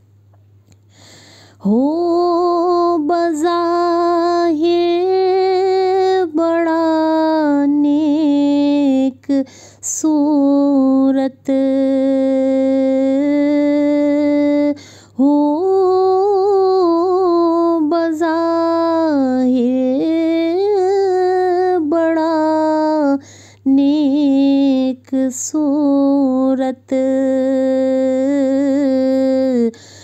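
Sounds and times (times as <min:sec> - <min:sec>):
singer breathing: 0:00.8 - 0:01.6, 0:09.4 - 0:09.8, 0:14.8 - 0:15.2, 0:23.2 - 0:23.6, 0:29.7 - 0:30.0.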